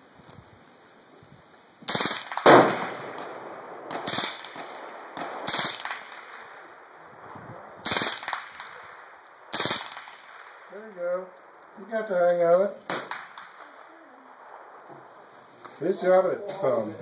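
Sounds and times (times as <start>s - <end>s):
suppressed rifle automatic bursts: 1.9s - 6.6s, 7.8s - 10.6s.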